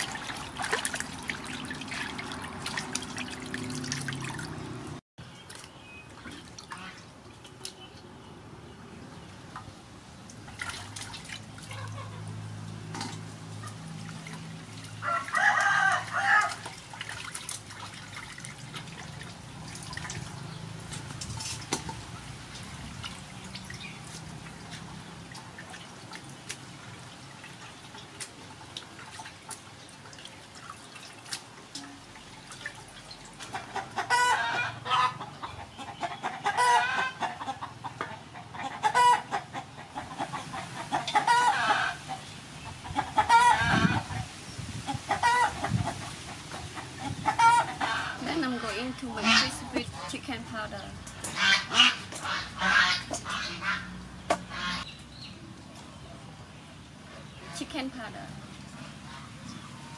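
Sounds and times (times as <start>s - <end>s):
water sloshing and dripping: 0.0s - 59.9s
chickens clucking: 11.7s - 12.3s, 33.5s - 44.3s, 44.9s - 50.2s, 51.1s - 56.0s.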